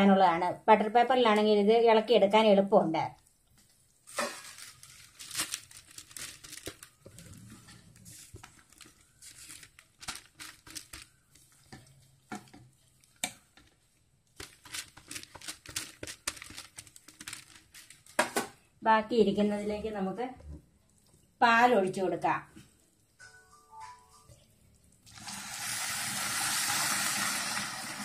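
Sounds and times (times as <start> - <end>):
paper crinkling and rustling: 4.1 - 18.3
wooden spoon scraping and tapping: 10.6 - 13.8.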